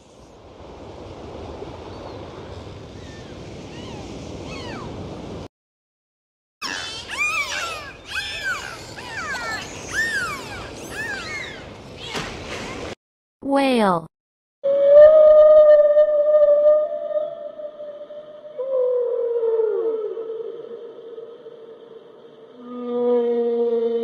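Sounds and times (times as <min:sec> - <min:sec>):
dolphins whistling underwater: 0:03.0 - 0:04.9, 0:06.6 - 0:12.8.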